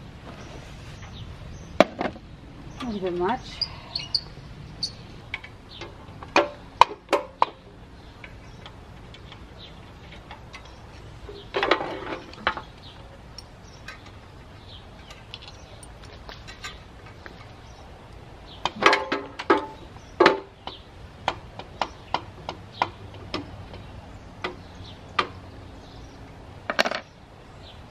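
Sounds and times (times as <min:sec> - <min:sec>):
rattling metal scrape: 0:09.0 - 0:12.8.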